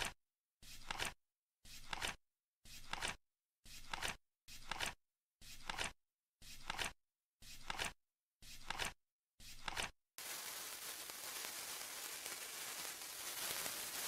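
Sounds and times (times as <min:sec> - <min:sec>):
split-flap card flipping: 0:06.5 - 0:14.0.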